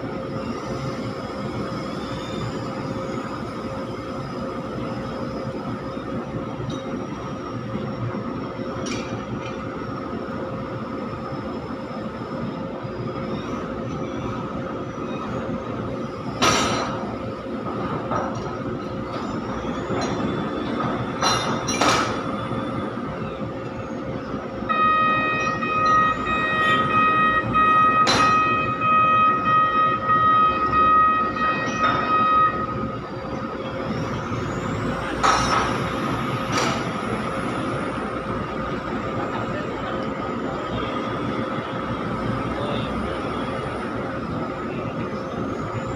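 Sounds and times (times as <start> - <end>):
diesel engine running: 12.2 - 45.9
loud steady high tone: 23.9 - 38.7.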